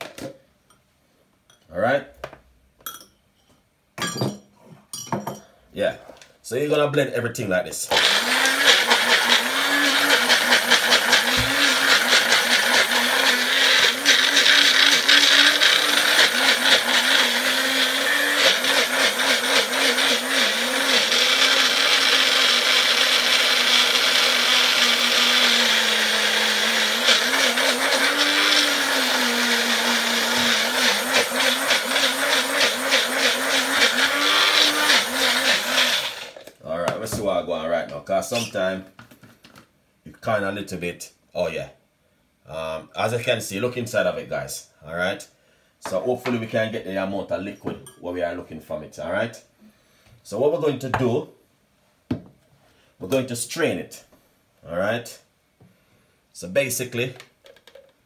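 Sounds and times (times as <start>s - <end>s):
blender motor chopping fruit: 7.9s - 36.5s.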